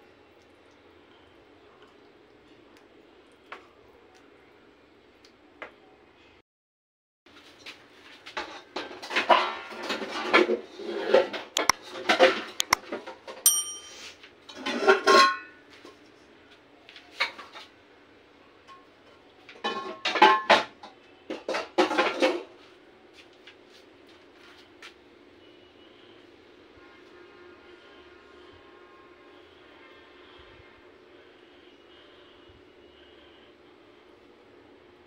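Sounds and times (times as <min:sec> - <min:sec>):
dishes and utensils clattering: 0:08.4 - 0:15.6, 0:19.6 - 0:22.5
short chiming ding: 0:13.5 - 0:14.1.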